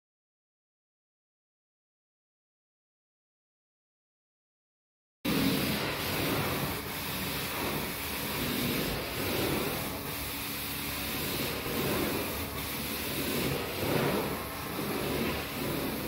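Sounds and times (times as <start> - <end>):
carpet cleaning wand sucking water: 5.3 - 16.0.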